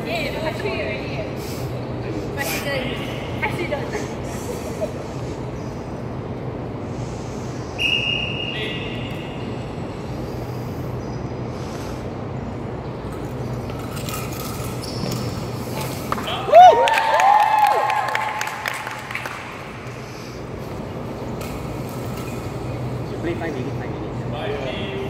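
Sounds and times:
low hum: 0:00.0 - 0:16.8.

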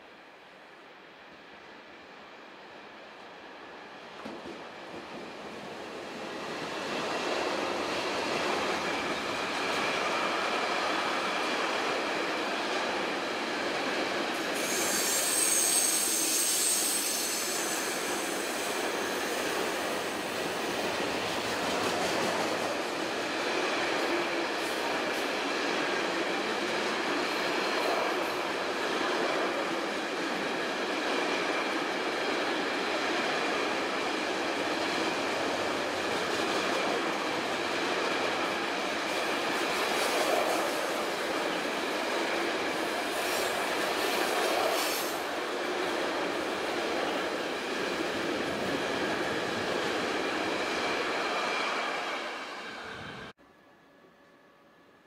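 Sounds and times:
train rolling on tracks: 0:00.1 - 0:53.4
high wheel squeal: 0:14.6 - 0:19.9.

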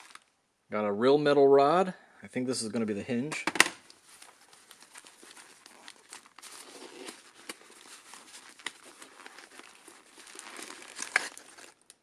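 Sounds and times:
packaging rustling and crinkling: 0:00.0 - 0:00.3, 0:03.8 - 0:12.0.

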